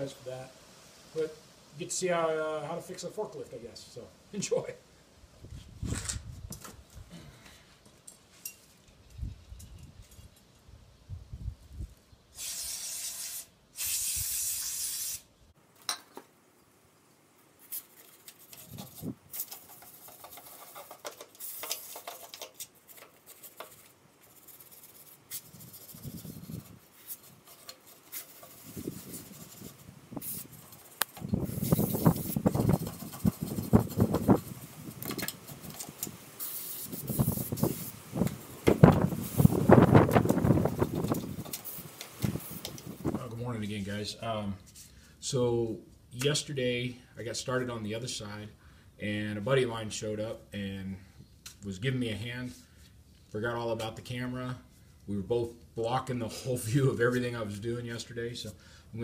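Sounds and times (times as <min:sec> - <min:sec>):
wind rumble on microphone: 0:05.4 - 0:07.1, 0:09.1 - 0:12.0, 0:25.5 - 0:26.8, 0:28.6 - 0:36.2, 0:36.9 - 0:41.6, 0:42.2 - 0:43.3
spray can hissing: 0:12.4 - 0:15.3, 0:28.2 - 0:34.6, 0:36.4 - 0:39.8, 0:41.2 - 0:42.9.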